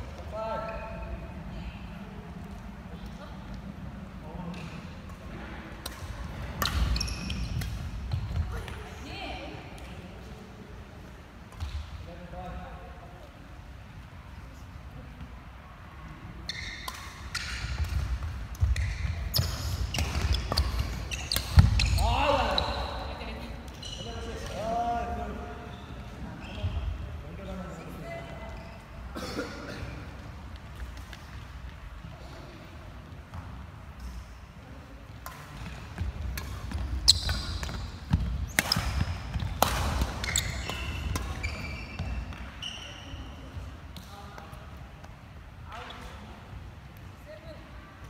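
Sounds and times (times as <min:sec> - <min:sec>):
rackets striking shuttlecock: 0:05.7 - 0:08.4, 0:16.8 - 0:22.0, 0:35.2 - 0:42.4
shoes squeaking on wooden floor: 0:18.6 - 0:22.9, 0:36.7 - 0:39.6, 0:40.2 - 0:43.4.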